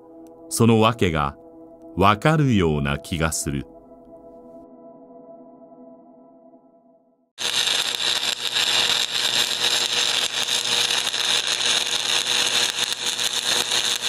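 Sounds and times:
electric arc crackling buzz: 0:07.4 - 0:14.0.

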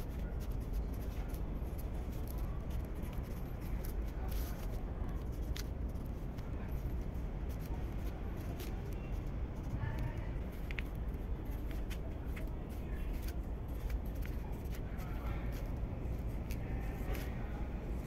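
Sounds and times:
pencil scratching on paper: 0:00.0 - 0:17.5
steady low rumble: 0:00.0 - 0:18.0.

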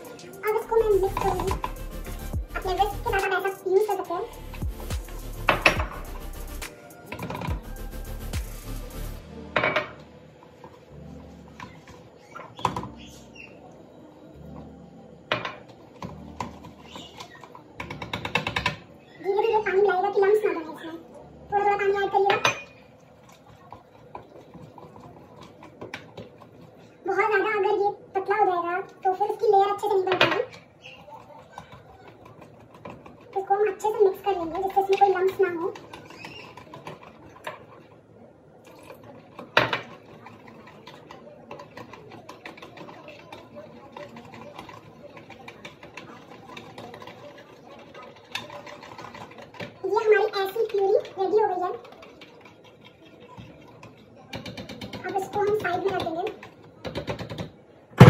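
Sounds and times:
whisk stirring in plastic bowl: 0:00.0 - 0:09.2, 0:15.7 - 0:20.9, 0:21.8 - 0:27.7, 0:28.8 - 0:57.4
whisk clicking against bowl: 0:38.8 - 0:57.4.

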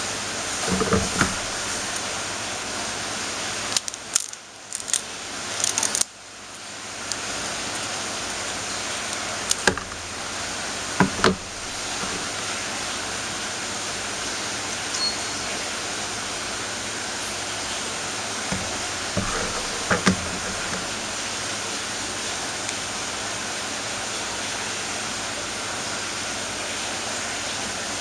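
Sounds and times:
scissors snipping crab shell: 0:03.8 - 0:06.1.

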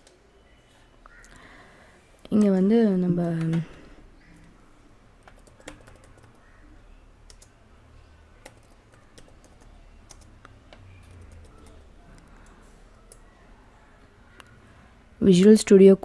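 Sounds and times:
faint low hum: 0:00.0 - 0:15.8
keyboard keys clicking: 0:03.2 - 0:03.8, 0:05.2 - 0:06.4, 0:07.3 - 0:07.6, 0:08.4 - 0:13.3.

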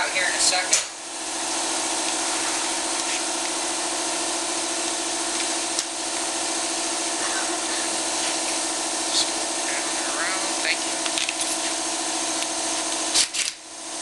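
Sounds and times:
air compressor running: 0:00.0 - 0:14.0.

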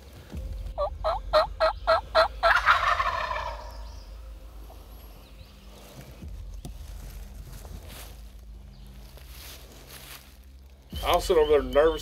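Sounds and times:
turkey yelps: 0:00.8 - 0:03.9
turkey gobbling: 0:00.8 - 0:04.1.

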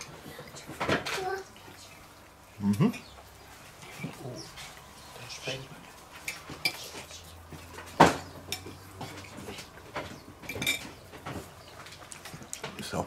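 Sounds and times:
cutlery clinking on plates: 0:06.2 - 0:11.5.

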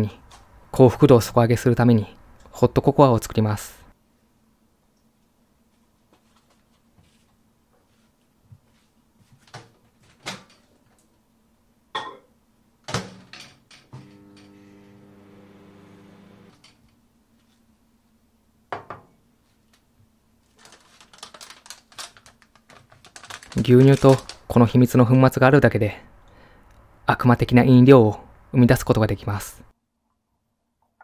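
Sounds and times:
microwave oven humming: 0:13.9 - 0:16.6.

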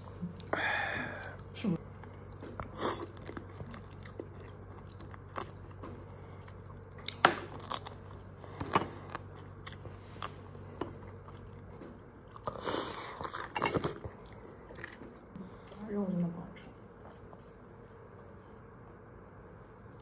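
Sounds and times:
person chewing and crunching: 0:00.0 - 0:15.8
low steady hum: 0:00.0 - 0:20.0.

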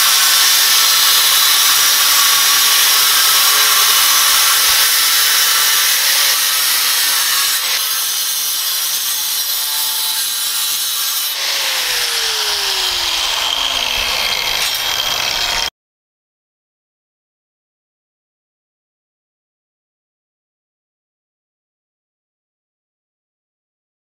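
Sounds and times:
angle grinder cutting steel: 0:00.0 - 0:15.7
grinder spinning down: 0:10.2 - 0:15.7.

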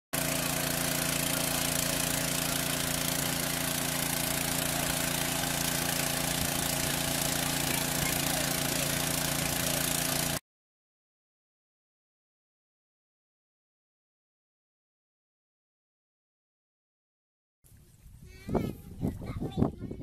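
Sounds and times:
generator engine running: 0:00.2 - 0:10.4.

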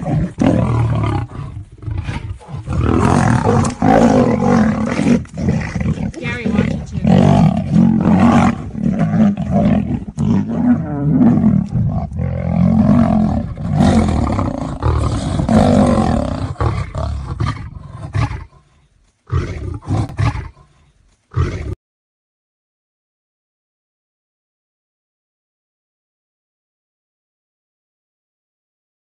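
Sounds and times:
big cats roaring and growling: 0:00.0 - 0:18.7, 0:19.3 - 0:21.8.

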